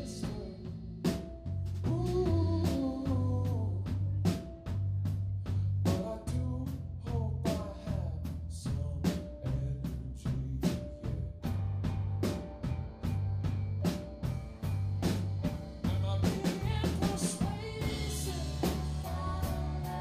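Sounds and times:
bass guitar: 0.0 - 20.0
drum kit beat: 0.0 - 20.0
keyboard: 10.3 - 20.0.

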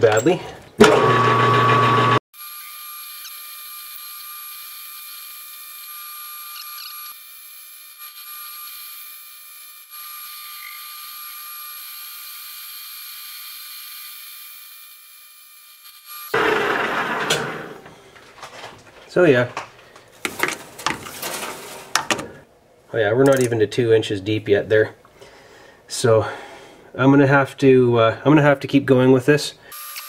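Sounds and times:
metal lathe cutting with whine: 0.9 - 3.3.

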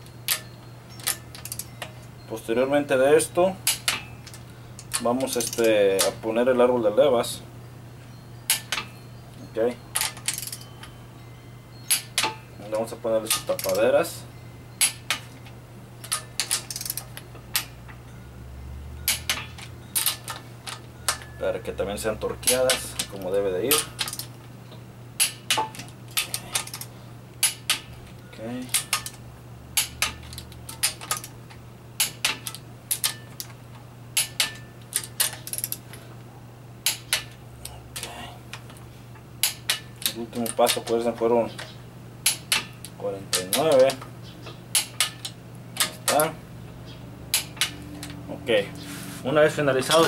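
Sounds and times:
metal bearing caps clinking: 0.0 - 7.4, 8.1 - 36.2, 36.8 - 50.0
torque wrench clicking: 16.0 - 17.7, 19.0 - 21.3, 22.4 - 24.3, 25.2 - 27.8, 28.7 - 29.2, 29.8 - 31.3, 32.0 - 33.6, 39.4 - 40.8, 41.6 - 44.0.

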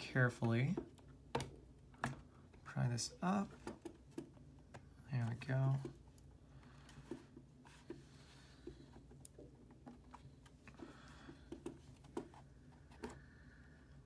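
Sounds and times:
quiet room hum: 0.0 - 14.0
small clicks and taps: 8.6 - 13.2.

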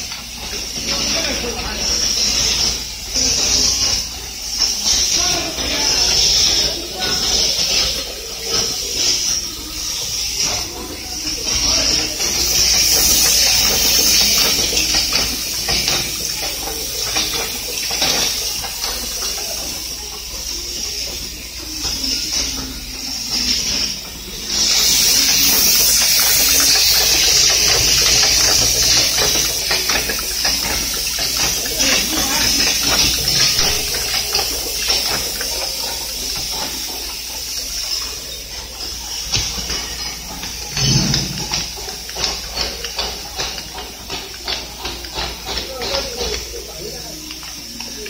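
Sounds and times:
machine hissing: 0.0 - 48.0
clicks and clacks of tooling: 11.5 - 20.4, 23.5 - 38.0, 38.8 - 46.5.

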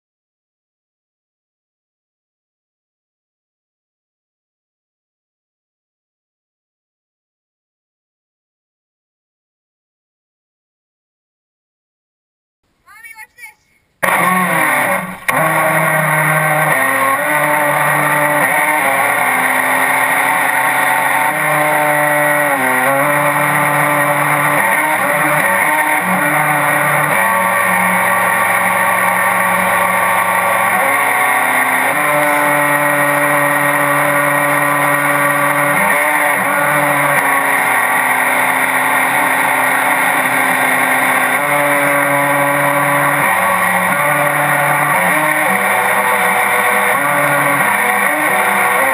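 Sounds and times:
boat motor running loud: 14.0 - 48.9.

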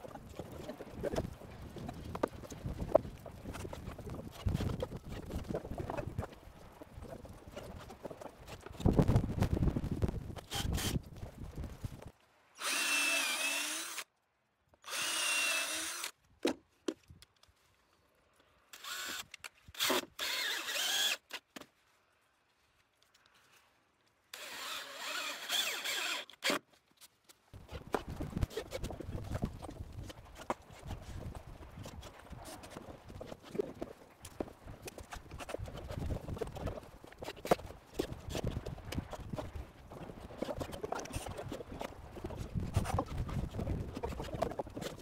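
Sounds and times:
cordless drill motor whine: 12.6 - 14.0, 14.8 - 16.1, 18.8 - 19.2, 19.8 - 21.2, 24.4 - 26.3.

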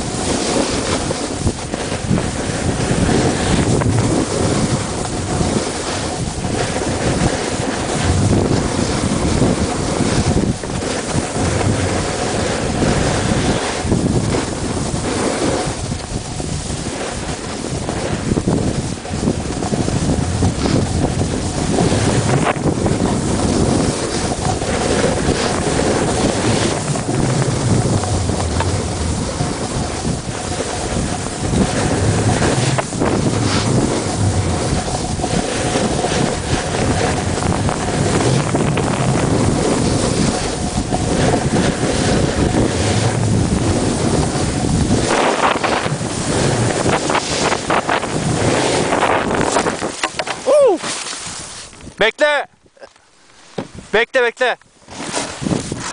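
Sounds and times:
skis sliding over snow: 0.0 - 52.5, 53.2 - 55.9
wind buffeting microphone: 0.0 - 54.0, 54.7 - 55.9.

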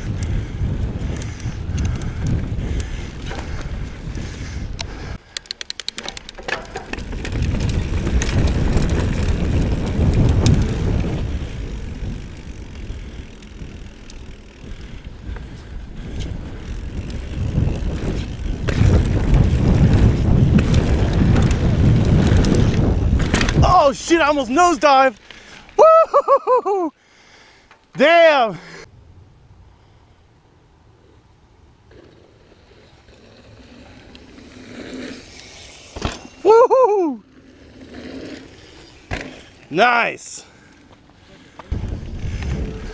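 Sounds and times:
wind buffeting the microphone: 0.0 - 5.2, 6.8 - 24.4, 41.4 - 42.9
bike rattling over a trail: 0.0 - 25.7, 31.9 - 42.9.

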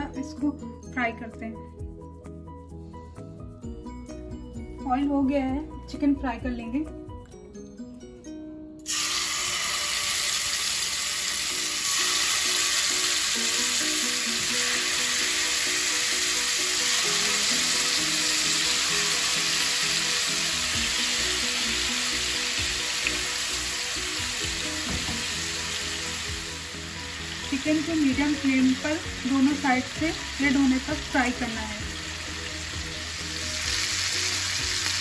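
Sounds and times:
chicken sizzling in hot oil: 8.9 - 35.0.

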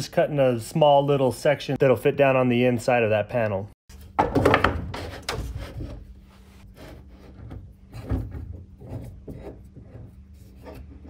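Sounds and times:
wood rubbing and scraping: 4.5 - 11.0.

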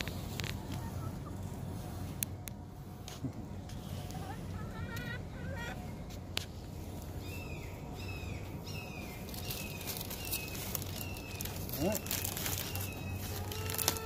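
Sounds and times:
steady low hum: 0.0 - 14.0
hens calling: 7.1 - 14.0.

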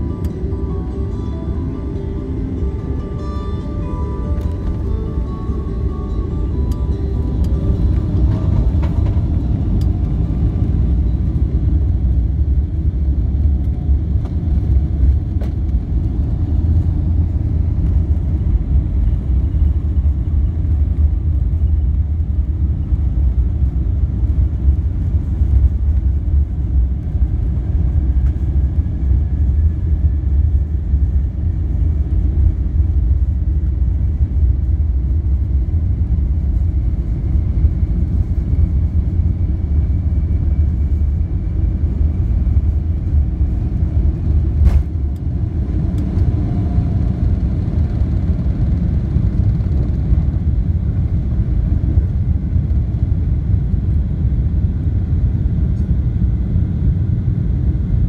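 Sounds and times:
faint rising whine: 0.0 - 56.4
aircraft cabin engine rumble: 0.0 - 58.0.

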